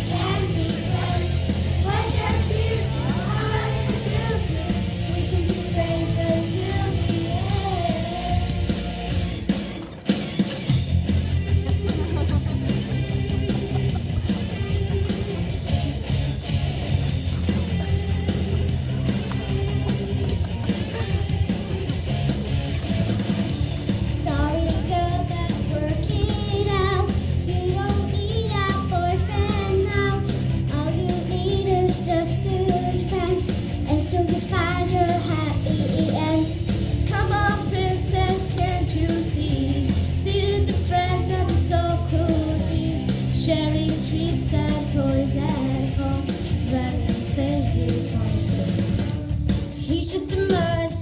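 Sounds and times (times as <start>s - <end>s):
children singing pop song: 0.0s - 9.0s, 23.6s - 51.0s
instrumental backing music: 0.0s - 51.0s.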